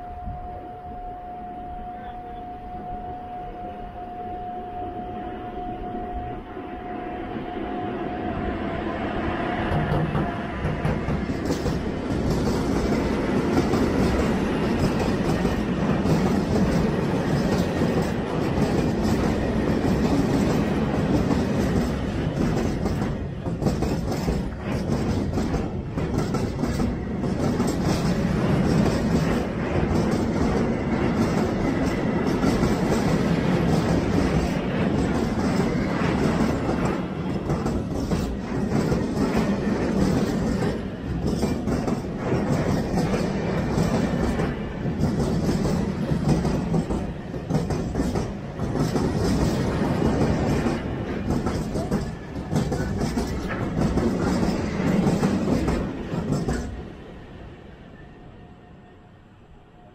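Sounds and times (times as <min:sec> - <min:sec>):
freight train passing: 0:00.0 - 0:59.9
wheels clattering over rail joints: 0:09.8 - 0:56.9.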